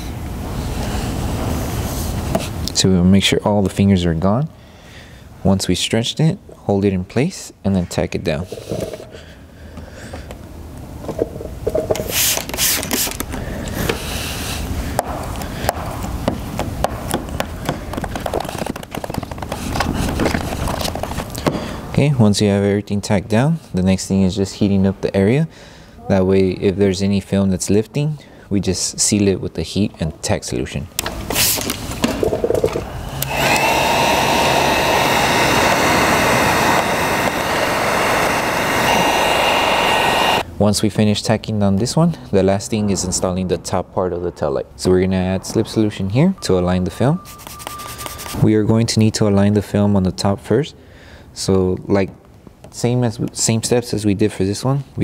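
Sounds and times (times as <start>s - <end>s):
heat gun fan blowing: 0.0s - 2.8s, 31.0s - 40.6s.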